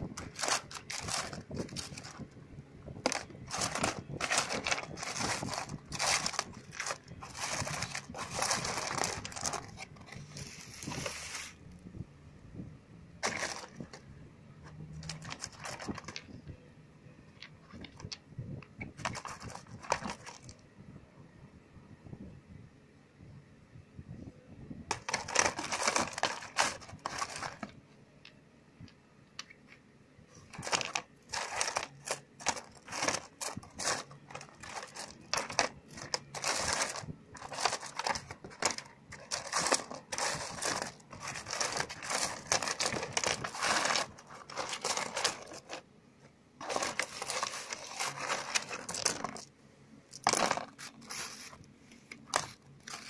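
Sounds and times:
stones clattering together: 50.2s - 50.8s.

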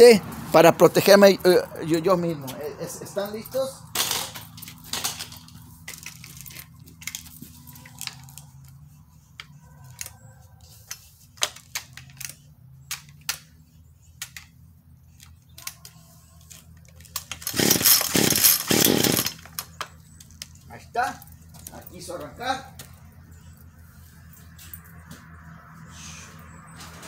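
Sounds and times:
handling clicks and rattles: 3.2s - 10.2s
chainsaw starter cord pulls: 17.1s - 19.8s.

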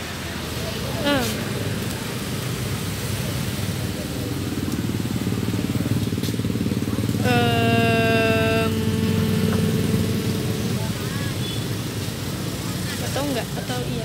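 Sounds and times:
low engine rumble: 0.5s - 12.3s
held pitched tone: 7.2s - 11.2s.

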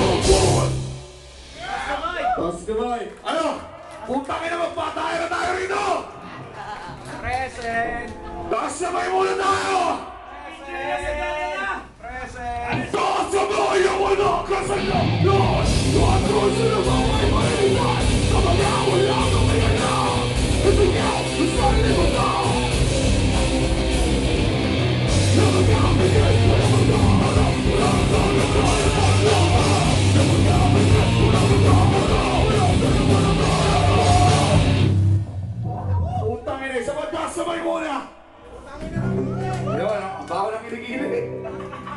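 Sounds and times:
person singing: 0.0s - 0.8s, 12.8s - 22.9s, 25.2s - 34.8s
metal band playing live: 0.0s - 2.0s, 12.7s - 35.4s.

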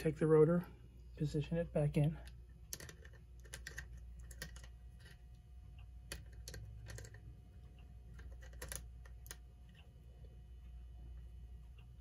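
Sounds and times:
faint low hum: 0.0s - 12.0s
small metal parts clicking: 2.2s - 5.4s, 6.1s - 9.4s.

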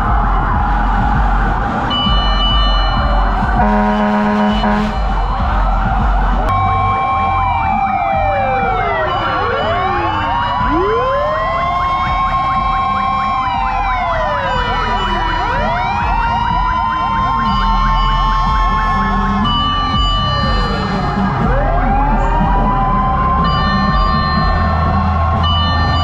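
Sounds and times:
fire truck sirens wailing: 0.0s - 26.0s
siren yelp: 0.0s - 26.0s
horn blast: 1.8s - 7.7s.

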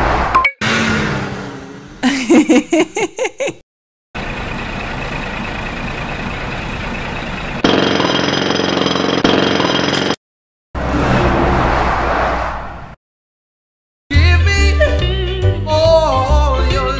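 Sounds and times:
truck engine running: 4.2s - 8.4s.

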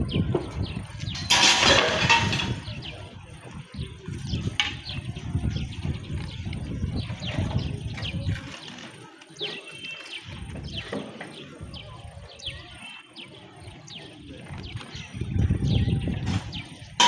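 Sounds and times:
low microphone rumble: 0.0s - 8.6s, 14.2s - 17.0s
small birds calling: 0.0s - 17.0s.

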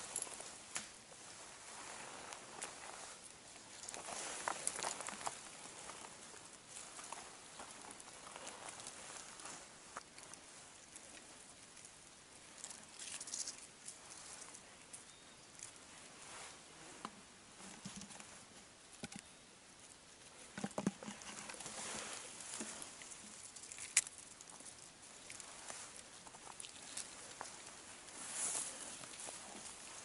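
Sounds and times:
hands rustling through dry grass: 0.0s - 17.0s, 21.2s - 30.0s
stems and twigs clicking: 3.6s - 15.8s, 22.4s - 29.9s.

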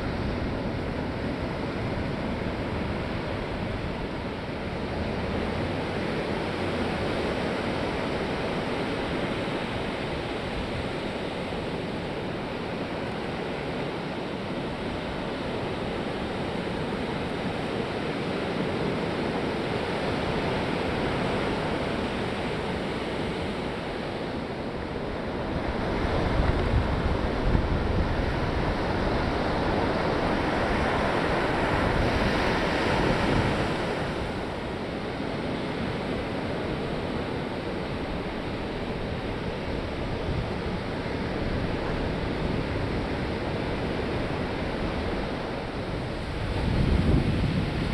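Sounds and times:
ocean surf breaking on beach: 0.0s - 47.9s
wind on microphone: 19.7s - 47.9s.

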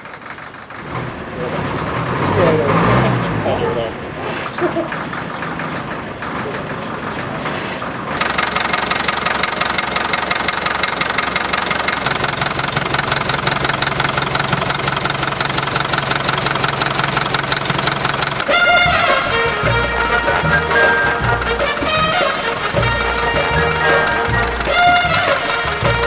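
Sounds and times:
diesel engine clattering: 0.0s - 26.0s
music: 18.5s - 26.0s.

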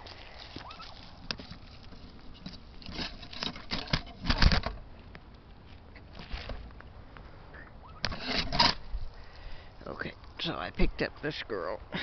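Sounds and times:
footsteps through dry leaves: 0.0s - 2.7s
turkey scuffle rustles and thumps: 0.0s - 6.8s, 8.0s - 9.0s.

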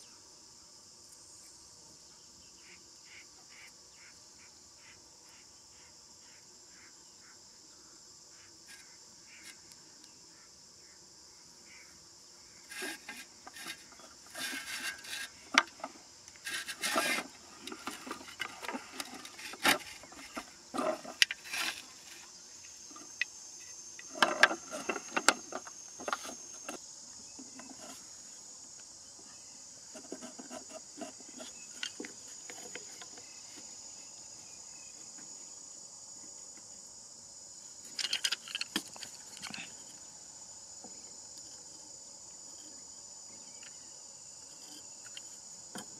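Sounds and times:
insects trilling: 0.0s - 45.9s
hands working bamboo sticks: 12.6s - 23.3s, 23.9s - 28.2s, 29.9s - 33.8s, 37.8s - 40.1s.

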